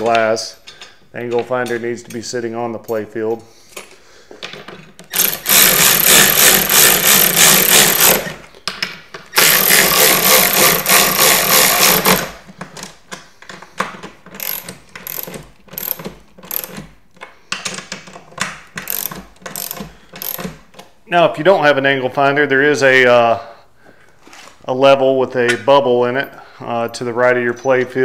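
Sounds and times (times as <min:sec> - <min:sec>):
ratchet wrench ratcheting: 0:05.1 - 0:08.4, 0:09.3 - 0:12.4, 0:14.4 - 0:16.9, 0:18.8 - 0:20.6.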